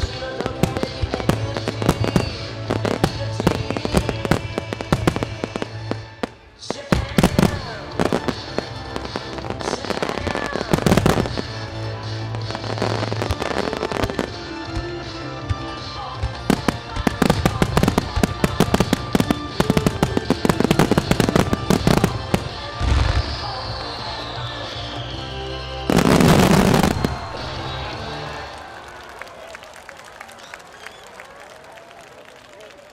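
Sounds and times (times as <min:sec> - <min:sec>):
fireworks launching and bursting: 0:00.0 - 0:28.6
music: 0:00.0 - 0:29.4.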